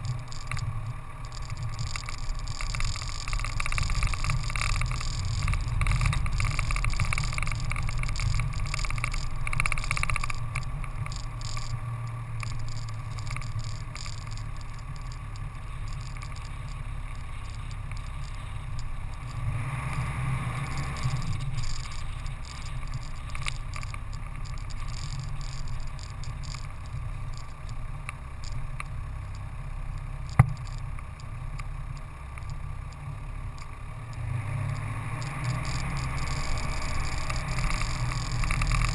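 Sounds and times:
vehicle rumbling on dirt track: 0.0 - 38.9
sharp click: 30.3 - 31.1.

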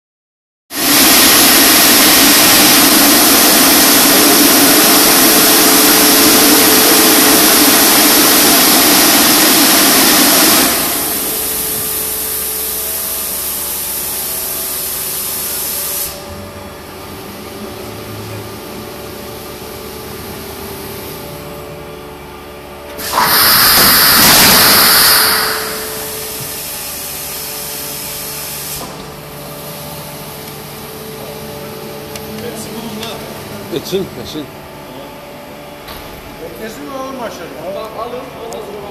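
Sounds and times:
loud hissing air: 0.7 - 16.3, 22.9 - 31.1
machine hum: 0.7 - 38.9.

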